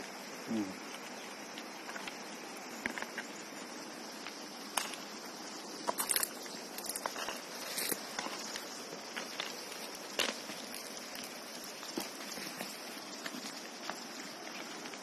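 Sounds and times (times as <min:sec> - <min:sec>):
high-pitched insect chirring: 0:00.0 - 0:14.6
hand tool digging stony soil: 0:05.8 - 0:15.0.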